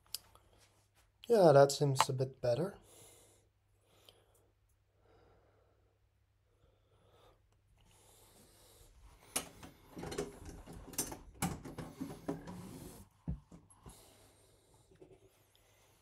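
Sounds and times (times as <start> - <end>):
objects knocking and clicking: 9.4 - 12.6.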